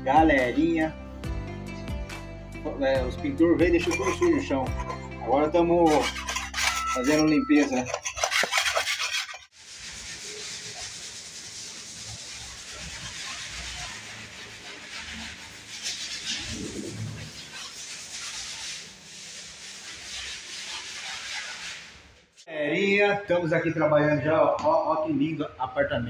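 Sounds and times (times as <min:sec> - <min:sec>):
scraper scraping a tiled floor: 0:03.6 - 0:22.5
hand-sanding a wall: 0:03.8 - 0:05.0, 0:05.6 - 0:22.1.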